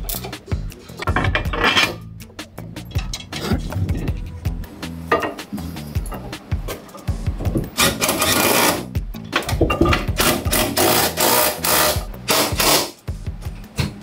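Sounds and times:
background music with bass line: 0.0 - 14.0
cordless power driver bursts: 10.2 - 13.0.

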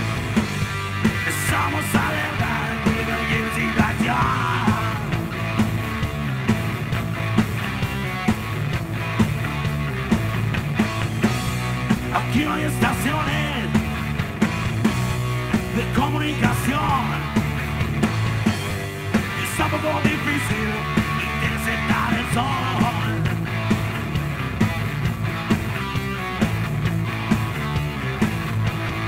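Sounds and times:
bass guitar: 0.0 - 29.0
drum kit beat: 0.0 - 29.0
electric guitar: 0.0 - 29.0
person singing: 1.1 - 5.3, 12.1 - 13.8, 15.7 - 17.4, 19.2 - 23.3.

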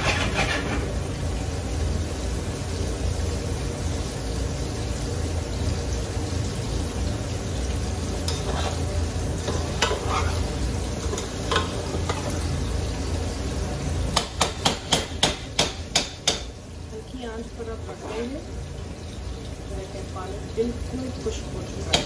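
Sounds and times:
metal spoon scraping pot: 0.0 - 1.0, 8.3 - 12.4
rice sizzling in pot: 0.0 - 22.0
spoon tapping pot: 14.2 - 16.5.

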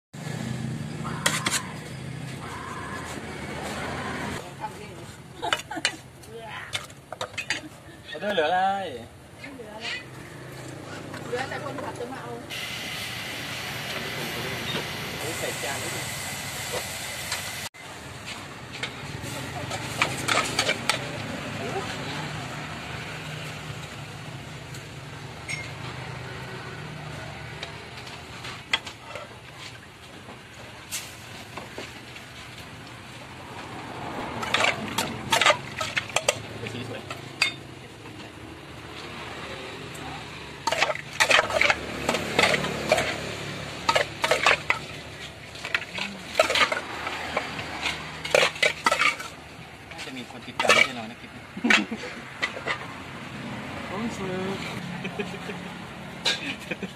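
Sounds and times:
metal spoon scraping a pot: 1.1 - 1.8, 9.8 - 10.2, 18.8 - 21.1, 34.4 - 37.6, 40.6 - 49.4, 50.0 - 52.9.

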